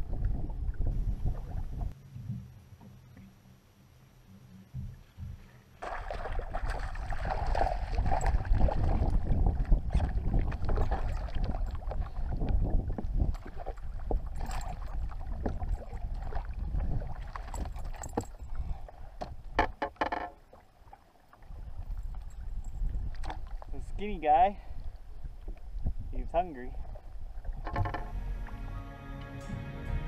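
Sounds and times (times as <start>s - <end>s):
wind noise on microphone: 0.0s - 2.9s, 6.4s - 19.8s, 21.5s - 28.6s
fish splashing and thrashing: 5.8s - 12.4s, 13.1s - 18.4s
water slapping on hull: 5.8s - 22.2s.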